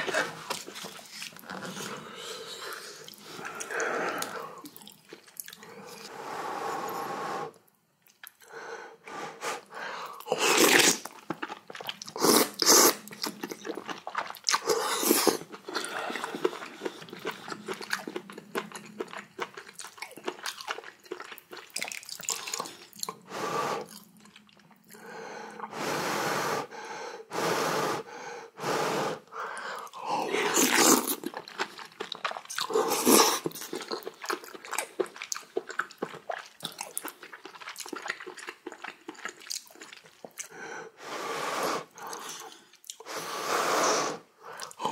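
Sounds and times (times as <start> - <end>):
person chewing and crunching food: 0.0 - 6.1, 8.0 - 8.6, 10.0 - 25.7, 29.6 - 40.6, 41.9 - 43.1, 44.5 - 44.9.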